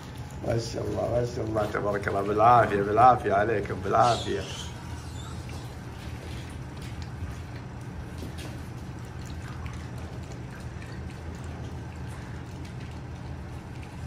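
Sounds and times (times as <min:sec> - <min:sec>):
steady low hum: 0:00.0 - 0:14.0
puppies' light clicks and taps: 0:04.5 - 0:14.0.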